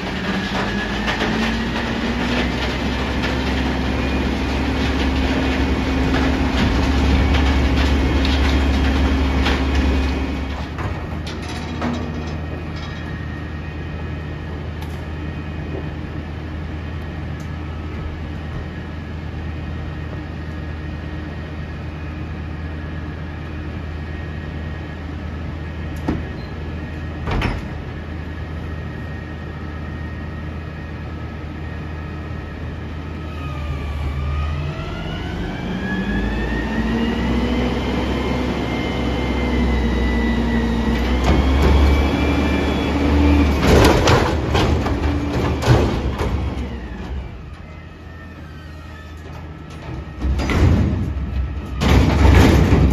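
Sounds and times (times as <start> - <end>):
garbage truck engine idling and revving: 0.0 - 52.9
loud metal clanks: 49.7 - 52.9.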